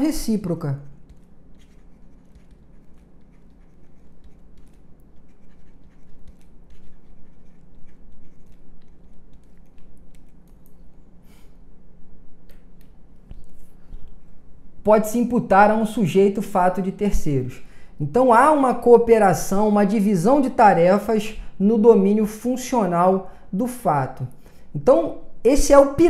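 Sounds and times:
faint steady hum: 0.0 - 26.0
stylus scratching on tablet: 1.0 - 10.9.

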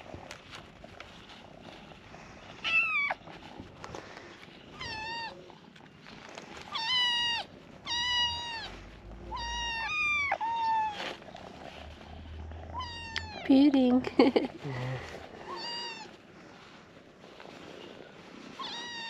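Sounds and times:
kittens meowing: 4.8 - 5.4, 6.7 - 11.1, 12.6 - 13.4, 15.4 - 16.2, 18.5 - 19.0.

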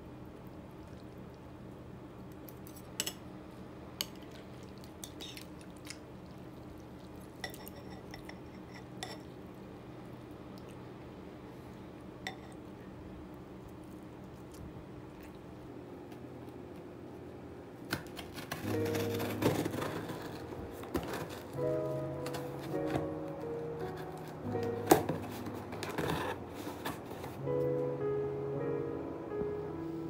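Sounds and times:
utensils clinking on ceramic bowl: 7.4 - 9.3.

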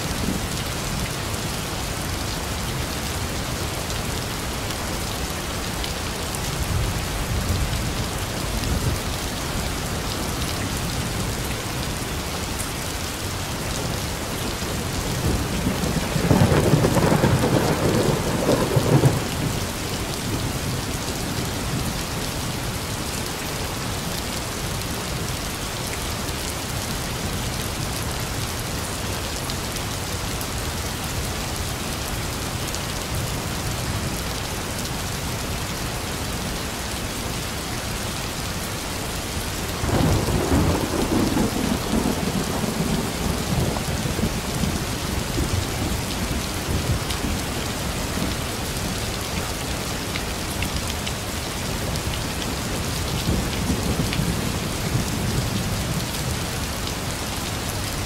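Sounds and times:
heavy rain falling: 0.0 - 58.0
thunder rumbling: 14.5 - 20.8, 39.8 - 47.3.

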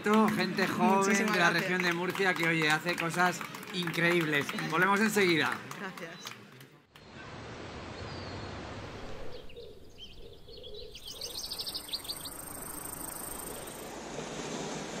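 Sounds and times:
bird chirps: 8.0 - 13.9
high insect trill: 11.8 - 13.9.

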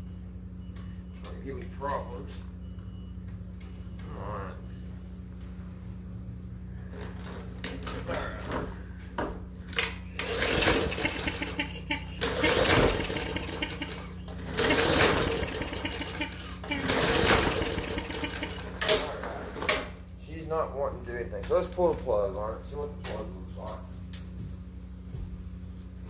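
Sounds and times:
lawn mower engine cranking: 6.9 - 8.6, 9.6 - 20.2.

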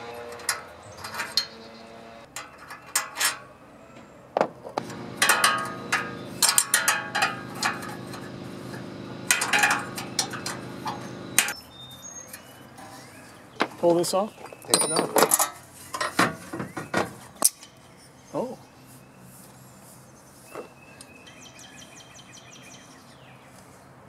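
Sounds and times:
metal tools clinking: 0.2 - 1.7, 4.8 - 11.6, 14.7 - 16.2
steady low hum: 4.8 - 11.6.

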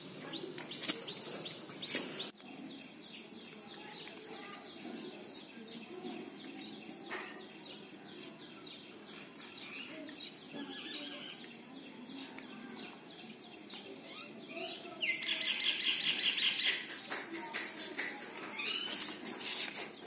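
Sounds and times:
small birds chirping: 0.0 - 20.0
clicks and scuffs: 0.2 - 2.4, 17.1 - 20.0.

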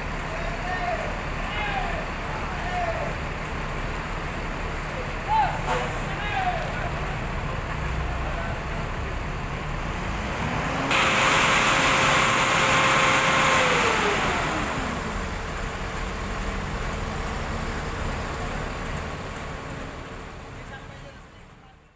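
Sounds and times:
bus diesel engine revving: 5.6 - 20.6
loud rushing noise: 9.9 - 15.9.

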